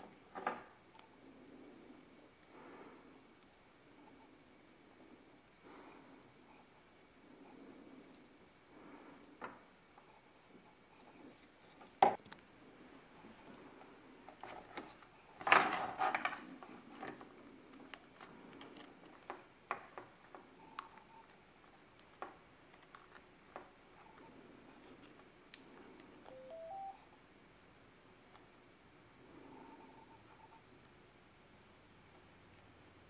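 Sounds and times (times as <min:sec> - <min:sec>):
rising beeps: 0:26.3 - 0:27.0
short radio beeps: 0:26.3 - 0:27.0.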